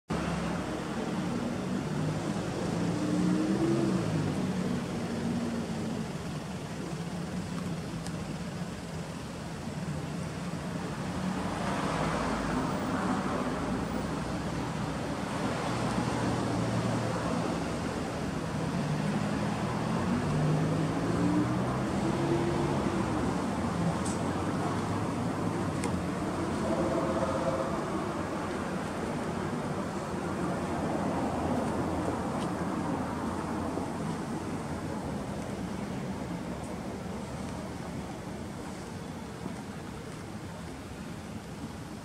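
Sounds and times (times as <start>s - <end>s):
car engine idling: 4.2s - 11.0s
rushing noise: 8.4s - 42.0s.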